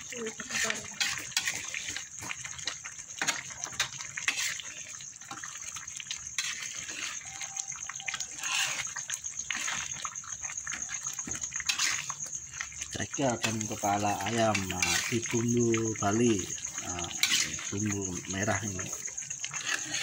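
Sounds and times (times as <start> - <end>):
spatula tapping and scraping wok: 0.3 - 2.0, 17.2 - 17.7.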